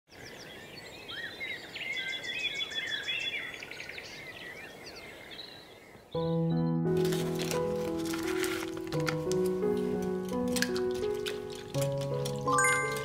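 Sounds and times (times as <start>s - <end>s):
birds singing: 0.1s - 6.9s
music: 6.2s - 13.0s.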